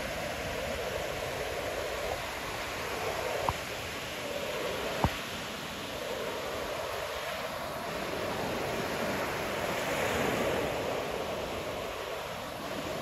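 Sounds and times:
ocean surf breaking: 0:00.0 - 0:13.0.

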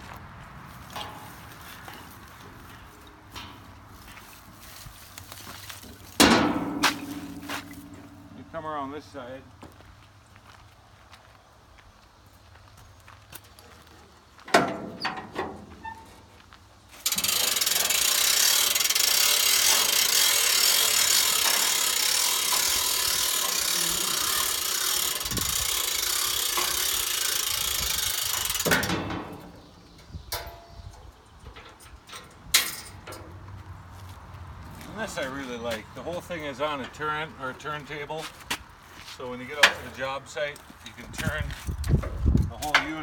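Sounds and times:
metal frame clanks: 0:00.9 - 0:04.4, 0:05.8 - 0:08.6, 0:14.5 - 0:16.2, 0:17.0 - 0:33.4
ratchet winch clicking: 0:17.0 - 0:28.9.

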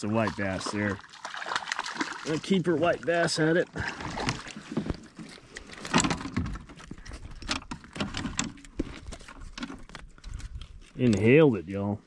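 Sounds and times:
fishing gear clicking and knocking: 0:04.0 - 0:11.4.

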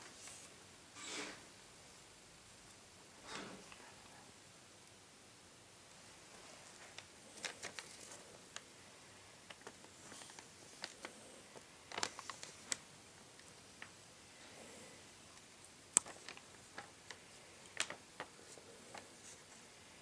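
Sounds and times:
paper rustling: 0:06.6 - 0:08.6, 0:09.4 - 0:12.9, 0:16.0 - 0:19.7.

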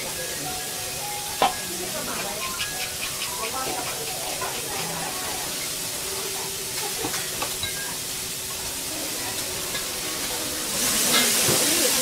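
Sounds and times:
food sizzling on a griddle: 0:00.0 - 0:12.0
liquid poured onto griddle sizzling: 0:04.2 - 0:12.0.

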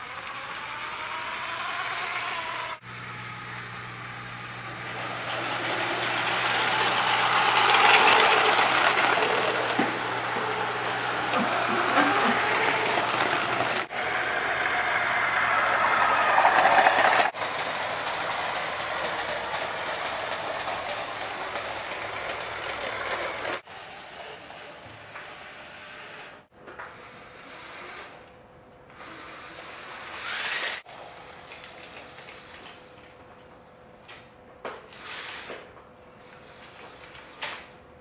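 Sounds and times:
toy train rattling on plastic track: 0:00.0 - 0:02.8, 0:04.9 - 0:13.9, 0:14.6 - 0:25.4, 0:29.1 - 0:30.9.

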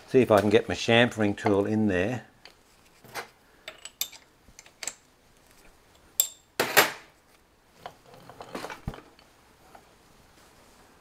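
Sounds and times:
metal tools clattering: 0:03.2 - 0:05.0
scraping and rattling: 0:07.8 - 0:09.9.

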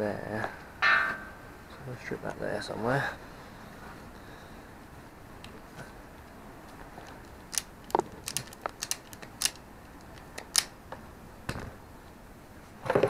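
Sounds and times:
wire strippers clicking: 0:06.7 - 0:10.8.

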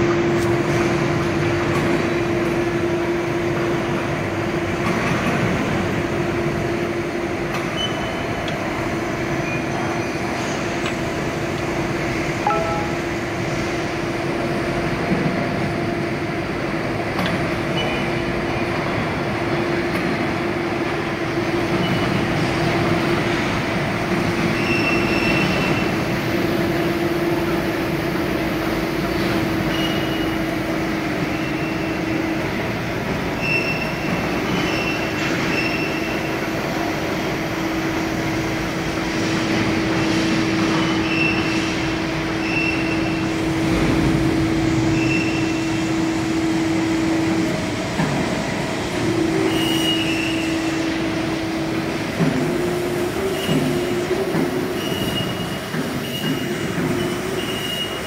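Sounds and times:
hydraulic machine hum: 0:00.0 - 0:58.0
short high chirps: 0:12.5 - 0:13.2.

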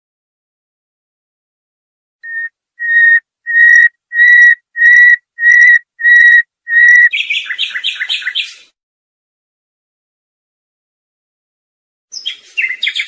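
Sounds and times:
songbird whistled notes: 0:02.2 - 0:08.6, 0:12.1 - 0:13.0
bird twittering trill: 0:02.2 - 0:08.7, 0:12.1 - 0:13.0.

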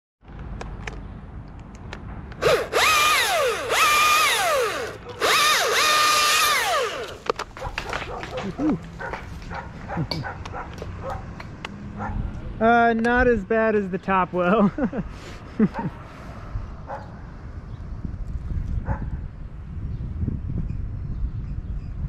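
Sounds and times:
chainsaw revving: 0:02.4 - 0:07.3.

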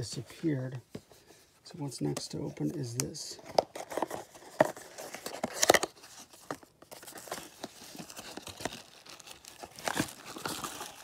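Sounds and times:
cardboard box being opened: 0:03.5 - 0:11.0.

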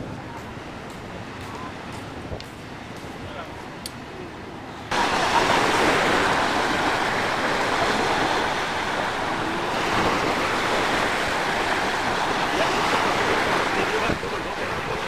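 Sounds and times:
small waves breaking on beach: 0:04.9 - 0:15.0.

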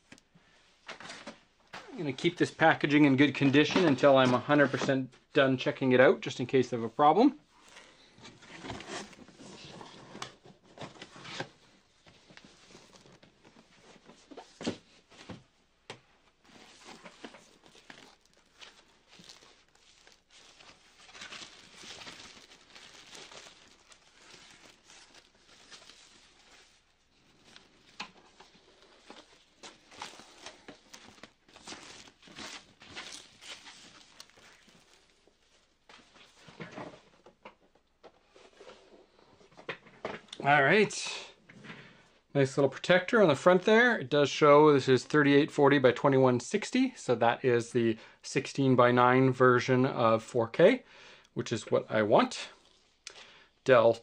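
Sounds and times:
cardboard and plastic rustling: 0:00.8 - 0:05.1, 0:07.5 - 0:40.8.

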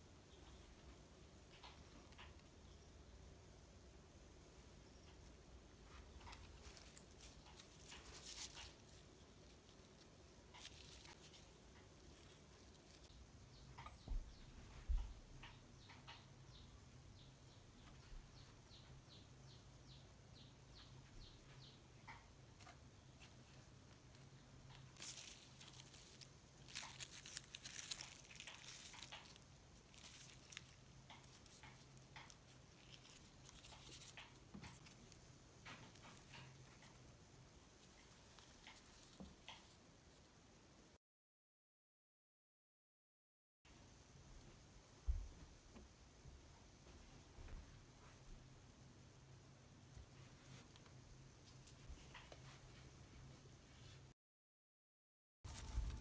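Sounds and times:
hands handling small decorations: 0:05.0 - 0:13.2, 0:22.6 - 0:40.3, 0:55.5 - 0:56.0
faint rustling: 0:05.0 - 0:15.2, 0:22.6 - 0:40.3.

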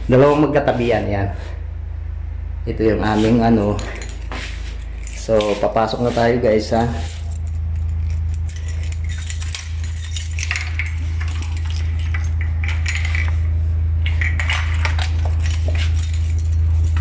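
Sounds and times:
steady low hum: 0:00.0 - 0:17.0
keys jangling at door lock: 0:03.6 - 0:17.0.

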